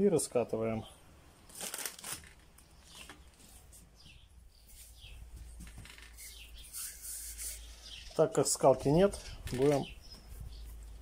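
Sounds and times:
faint bird chirps: 2.7 - 8.3.

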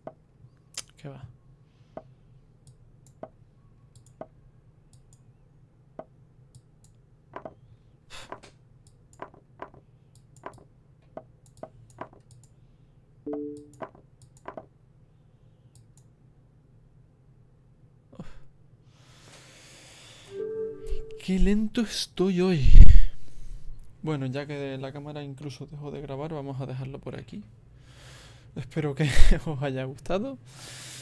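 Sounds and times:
computer mouse clicking: 3.9 - 4.3, 8.3 - 12.6, 13.7 - 14.6
two-note electronic tone: 13.3 - 13.8, 20.3 - 21.3.

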